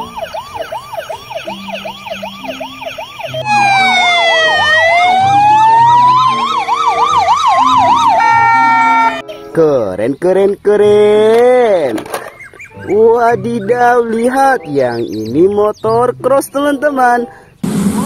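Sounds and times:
ambulance siren slow wail: 0.0 - 9.2
fast warbling siren: 0.0 - 9.2
toy ambulance siren whooping: 0.0 - 9.2.

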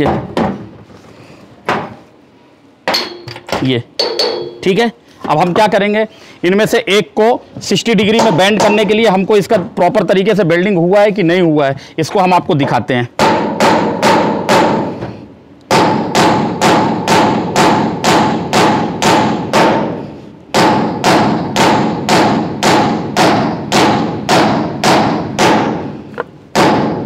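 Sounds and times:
hammer striking metal stud: 2.9 - 4.6, 13.2 - 15.1, 15.7 - 25.9, 26.5 - 27.0.

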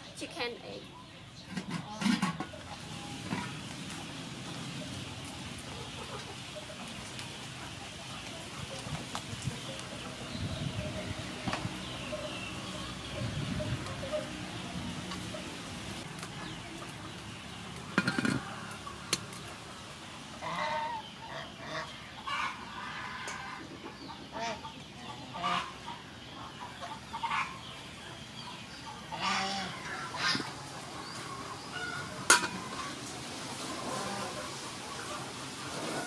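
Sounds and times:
chickens calling: 0.0 - 36.0.

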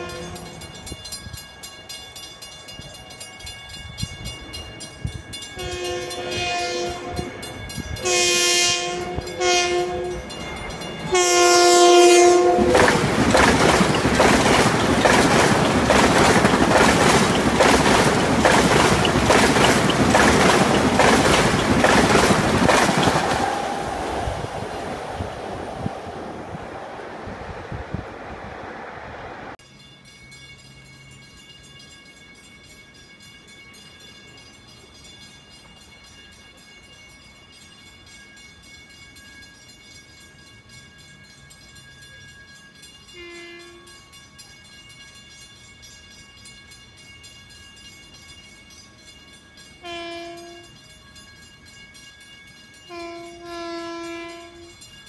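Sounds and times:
train horn: 0.0 - 0.7, 5.6 - 10.4, 11.1 - 13.0, 43.1 - 44.0, 49.8 - 50.8, 52.9 - 54.8
train rumbling past: 0.0 - 29.8
wheels clattering over rails: 12.4 - 28.8.

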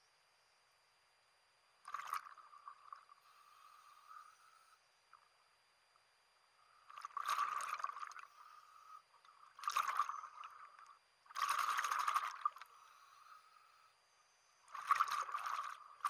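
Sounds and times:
underwater exhaust bubbles: 1.9 - 3.4, 6.9 - 8.5, 9.2 - 13.4, 14.7 - 16.0.

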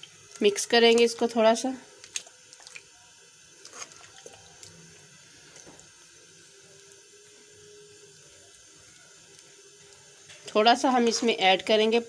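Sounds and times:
metal spoon stirring in a pot: 3.6 - 5.7.

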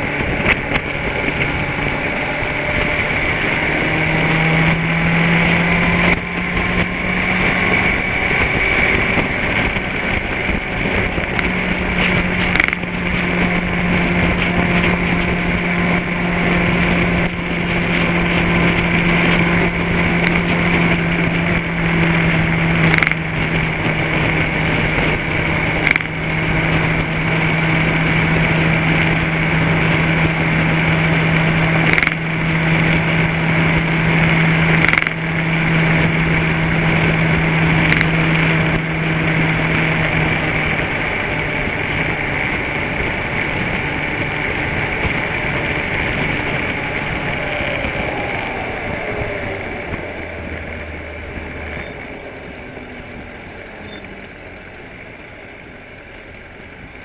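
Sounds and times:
small engine running: 0.0 - 57.0
sharp clicks: 11.4 - 13.2, 22.8 - 23.2, 25.8 - 26.1, 31.9 - 32.2, 34.8 - 35.2.

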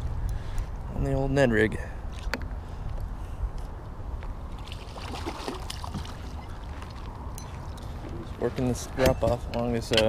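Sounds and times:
steady low rumble: 0.0 - 4.9
water sloshing and splashing: 4.4 - 8.4.

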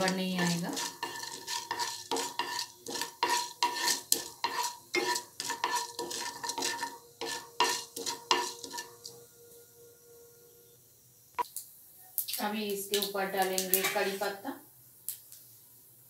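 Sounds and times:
wooden spatula scraping a pan: 0.0 - 9.2, 13.7 - 14.4.

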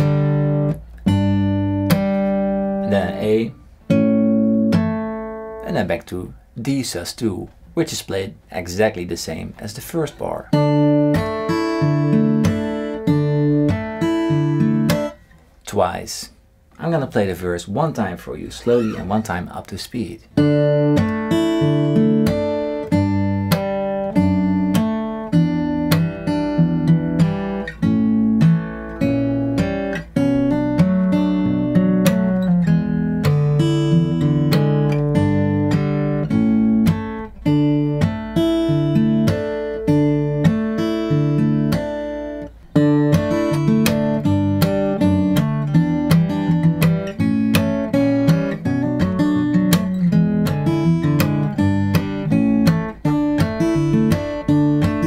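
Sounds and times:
acoustic guitar fingerpicked: 0.0 - 55.0
percussive slaps on guitar strings: 43.0 - 48.5, 49.7 - 55.0.

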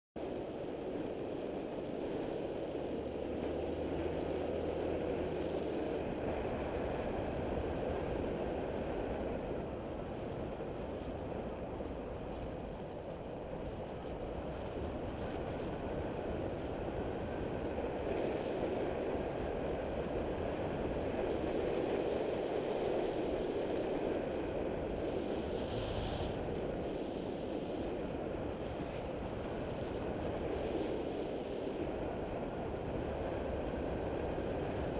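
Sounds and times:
wind rush over microphone: 0.2 - 34.9.

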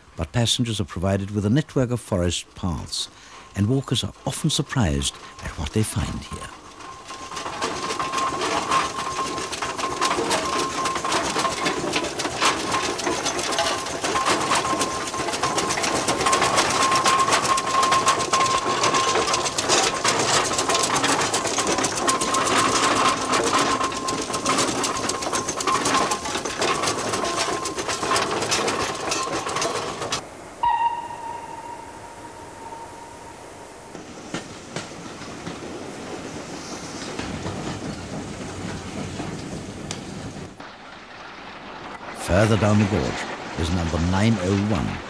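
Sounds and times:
steam train clatter: 0.0 - 45.0
high ringing tone: 30.5 - 34.3.

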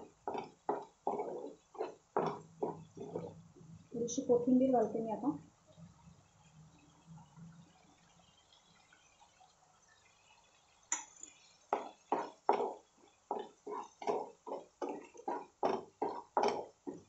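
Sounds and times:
spatula stirring thick gravy: 0.0 - 3.6, 10.9 - 17.0.

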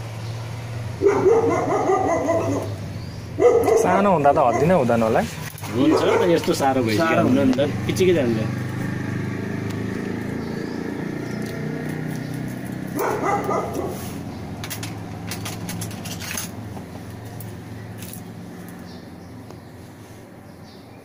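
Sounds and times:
puppy crying: 1.0 - 2.8
puppy yelping: 1.0 - 2.8, 3.4 - 4.8, 5.7 - 6.6, 13.0 - 14.1.

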